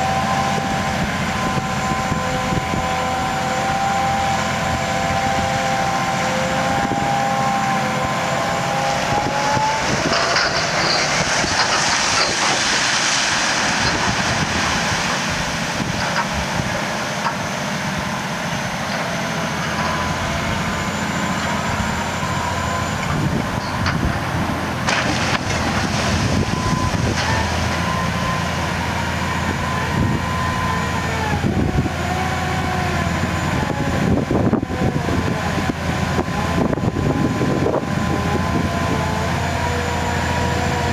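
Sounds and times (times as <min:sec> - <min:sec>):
rising and falling whine: 0:00.0 - 0:10.8
diesel engine running under load: 0:00.0 - 0:40.9.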